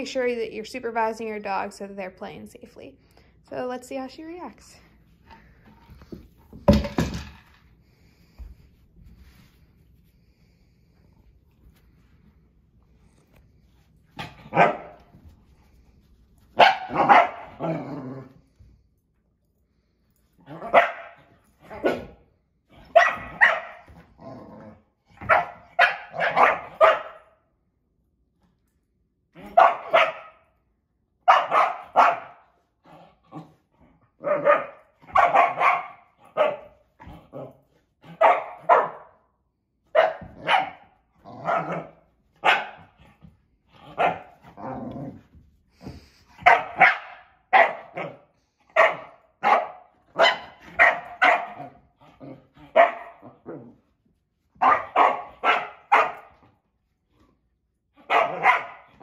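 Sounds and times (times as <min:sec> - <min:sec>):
dog barking: 0:14.5 - 0:15.0, 0:16.6 - 0:17.7, 0:20.6 - 0:21.2, 0:22.9 - 0:23.8, 0:25.2 - 0:27.3, 0:29.5 - 0:30.4, 0:31.2 - 0:32.4, 0:34.2 - 0:36.8, 0:38.1 - 0:39.2, 0:39.9 - 0:42.9, 0:44.0 - 0:44.3, 0:46.4 - 0:51.7, 0:52.7 - 0:53.2, 0:54.6 - 0:56.3, 0:58.0 - 0:59.0.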